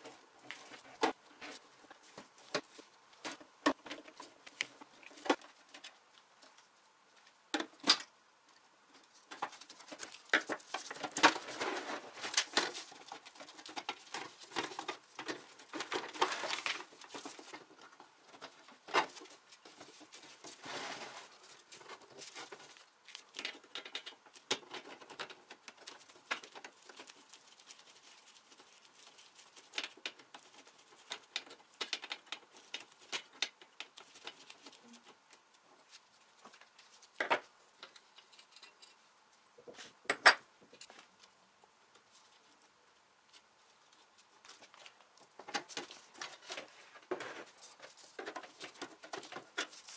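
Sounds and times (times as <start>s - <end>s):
thin metal panels clicking and scraping: 37.8s - 39.0s.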